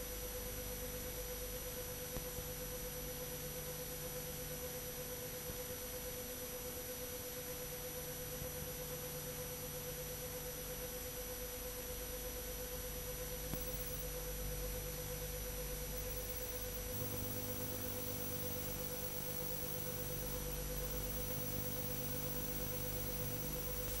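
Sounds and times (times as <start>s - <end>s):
tape hiss: 13.5s - 14.2s, 15.8s - 24.0s
steady electronic tone: 13.6s - 14.0s, 16.0s - 24.0s
low hum: 16.0s - 24.0s.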